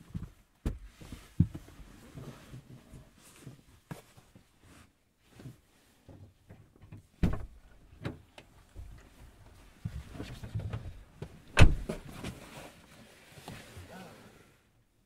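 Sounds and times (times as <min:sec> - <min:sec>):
shuffling and rustling: 0:00.0 - 0:07.1, 0:08.5 - 0:13.9
knocks and thumps: 0:07.2 - 0:08.2.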